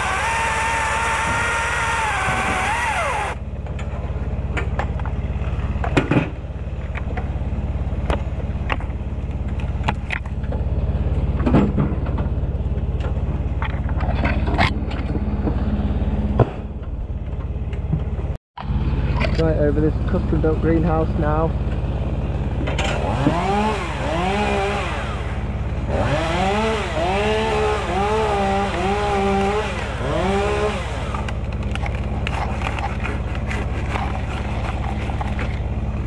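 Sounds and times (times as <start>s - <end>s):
chainsaw cutting wood: 0.0s - 3.4s, 22.8s - 36.0s
low engine hum: 0.0s - 36.0s.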